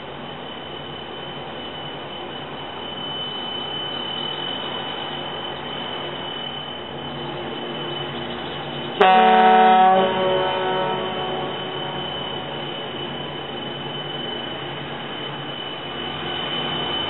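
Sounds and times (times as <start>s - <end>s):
steady background noise: 0.0s - 17.0s
boat horn blast: 9.0s - 12.0s.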